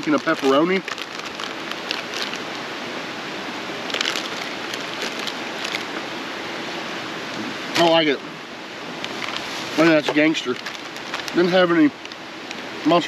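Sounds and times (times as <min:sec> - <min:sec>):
plastic bag crinkling: 0:00.0 - 0:02.7, 0:03.8 - 0:06.0, 0:09.1 - 0:12.6
creek water rushing: 0:00.0 - 0:13.0.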